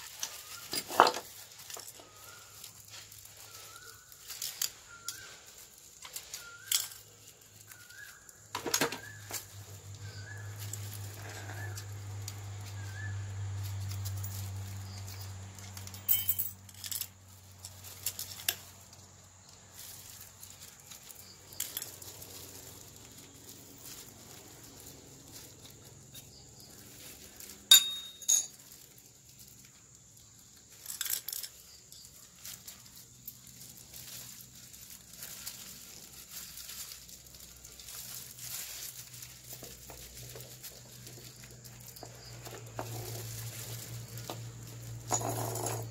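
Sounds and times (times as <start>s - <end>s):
metal parts clinking: 0.0s - 2.0s, 4.0s - 7.7s, 15.1s - 18.7s, 19.8s - 22.7s, 27.4s - 28.8s, 30.6s - 45.9s.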